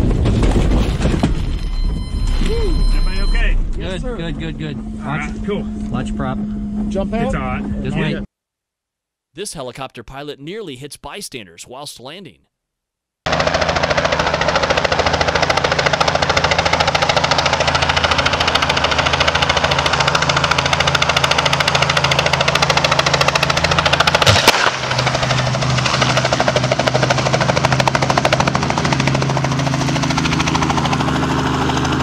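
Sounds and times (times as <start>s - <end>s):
helicopter engine running: 1.5s - 8.3s, 13.3s - 32.0s
helicopter rotor chopping: 13.3s - 32.0s.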